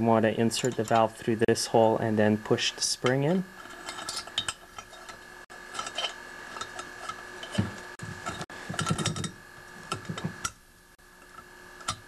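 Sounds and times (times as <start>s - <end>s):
metal clicks and knocks: 5.8s - 10.6s.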